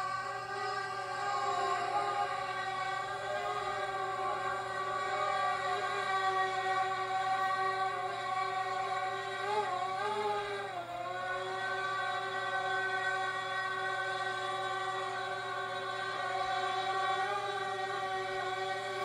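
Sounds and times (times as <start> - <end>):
choral music with held notes: 0.0 - 19.0.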